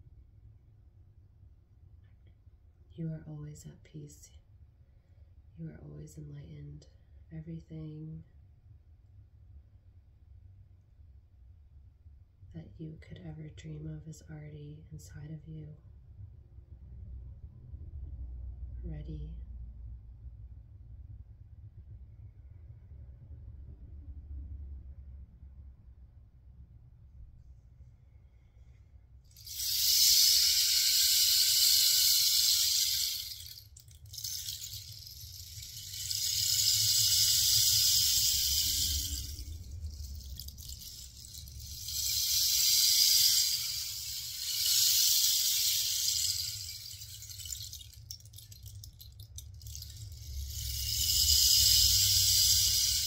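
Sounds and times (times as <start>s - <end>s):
rain stick rattling: 29.3s - 53.0s.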